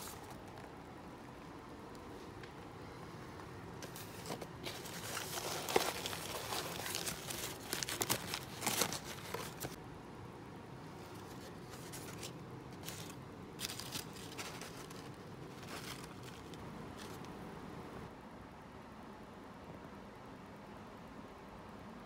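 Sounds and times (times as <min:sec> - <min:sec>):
paper wrapper crinkling: 0:00.0 - 0:00.8, 0:03.8 - 0:09.8, 0:11.0 - 0:17.4.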